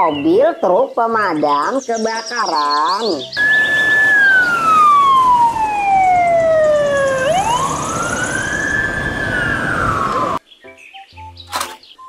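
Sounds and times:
road noise: 3.3 - 10.4
fire engine siren wailing: 3.4 - 10.4.

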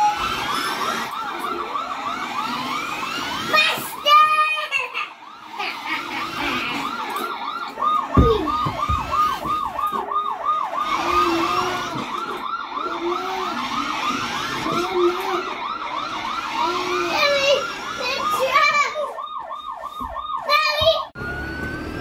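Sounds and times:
toy police siren wailing: 0.0 - 22.0
thumps: 7.9 - 10.2.

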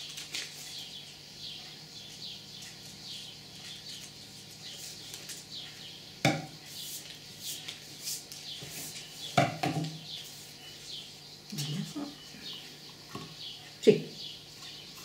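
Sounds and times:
objects knocking on table: 9.4 - 10.0.

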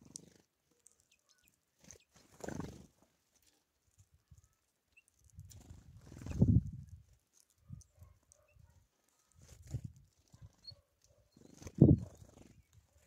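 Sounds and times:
faint high bird chirps: 0.8 - 2.2, 10.5 - 12.8
bird wings fluttering: 1.8 - 3.0, 5.4 - 6.9, 11.4 - 12.7.

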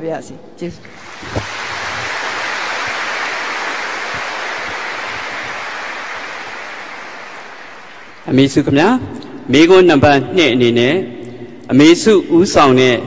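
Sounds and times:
large audience applauding: 0.9 - 8.7.

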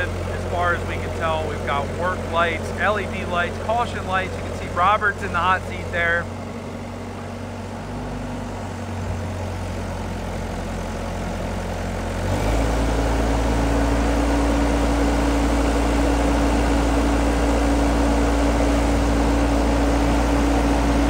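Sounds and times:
diesel engine running: 0.0 - 21.0
steady hydraulic humming tone: 13.4 - 21.0.

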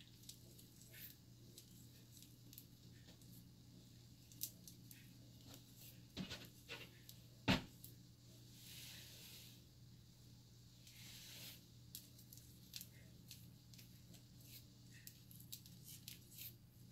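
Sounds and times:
hair rustling: 10.8 - 16.9.

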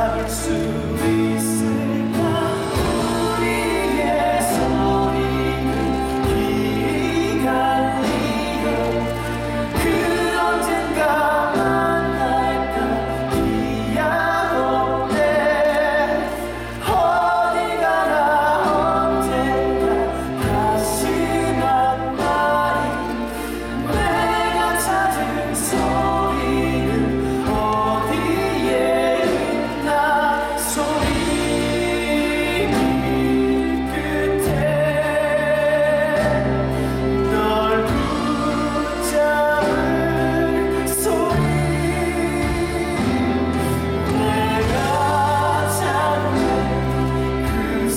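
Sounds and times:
stage musical singing: 0.0 - 47.9.

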